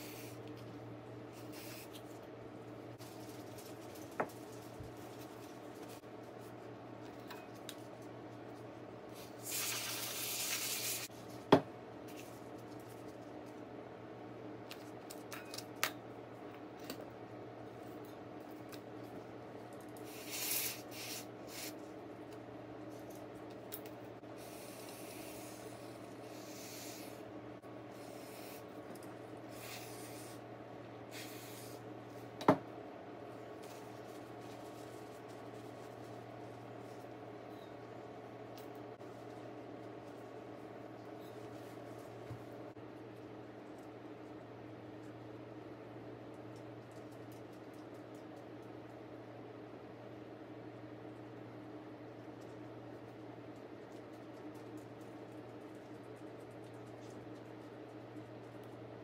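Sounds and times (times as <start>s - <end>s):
steady low hum: 0.0s - 59.0s
soft hissing and rubbing: 1.3s - 2.0s, 9.1s - 11.1s, 20.0s - 21.8s, 24.4s - 27.2s, 29.5s - 30.4s, 31.1s - 31.9s
aerosol spray hiss: 9.4s - 11.1s, 20.1s - 21.7s.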